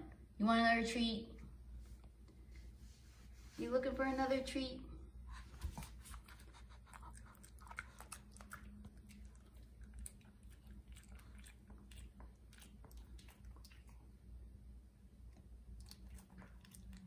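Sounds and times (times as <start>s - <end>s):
dog crunching a treat: 6.3s - 14.0s, 15.8s - 17.0s.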